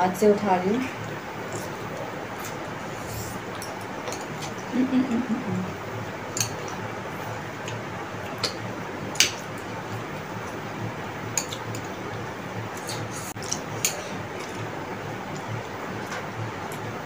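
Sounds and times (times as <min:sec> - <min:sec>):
chopsticks clicking on plates: 0:06.3 - 0:06.8.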